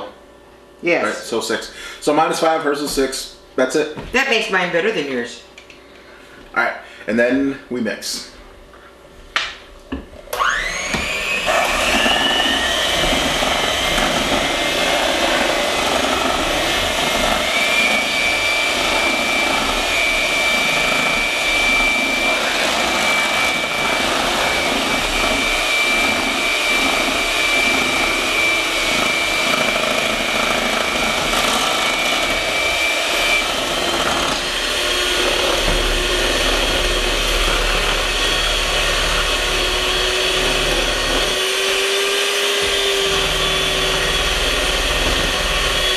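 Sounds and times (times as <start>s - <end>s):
electric hand mixers whining: 10.2s - 45.9s.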